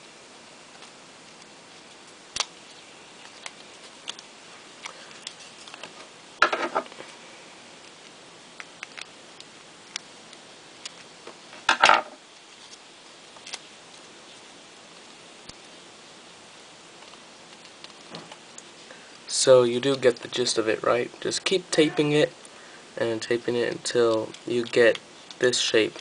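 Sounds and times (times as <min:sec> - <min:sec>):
tape and card crinkling: 0:00.7 - 0:06.0, 0:12.3 - 0:14.4.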